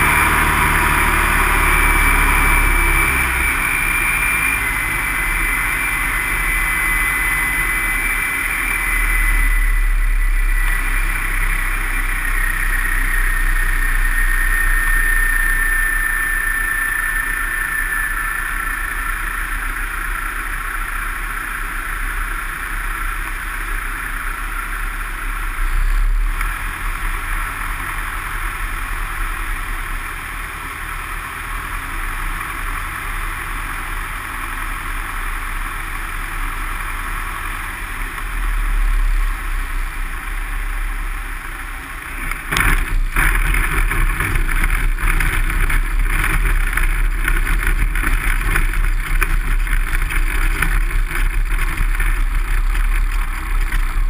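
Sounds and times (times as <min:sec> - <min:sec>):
light aircraft engine and propeller: 0:00.0 - 0:54.0
wheels rattling over bumpy grass: 0:41.9 - 0:54.0.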